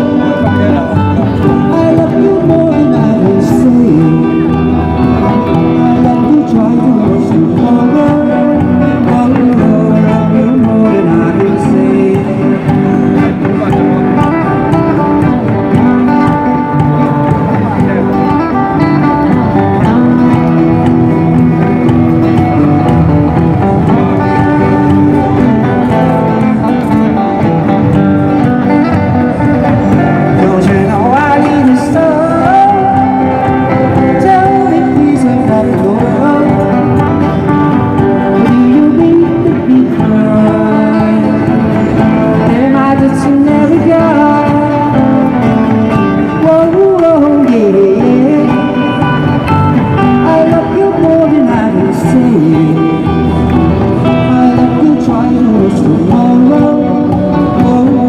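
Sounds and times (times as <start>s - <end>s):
live band playing pop song: 0.0s - 58.0s
person singing: 0.0s - 58.0s.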